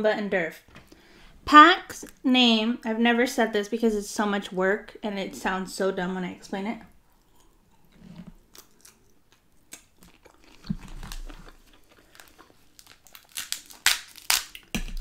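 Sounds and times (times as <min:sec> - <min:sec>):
chewing: 0:07.1 - 0:13.3
crab shell crackling and cracking: 0:08.5 - 0:15.0.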